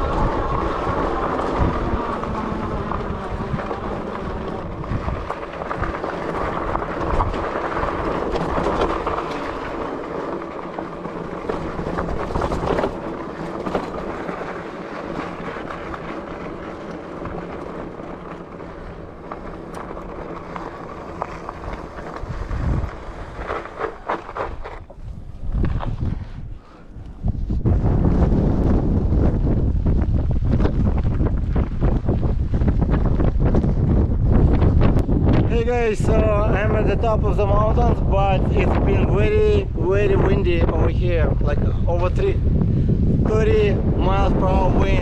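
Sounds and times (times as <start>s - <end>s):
electric motor whining: 0.0s - 9.9s
wind on microphone: 0.0s - 18.8s, 19.8s - 45.0s
tyres rumbling on dirt: 0.0s - 26.7s, 27.6s - 45.0s.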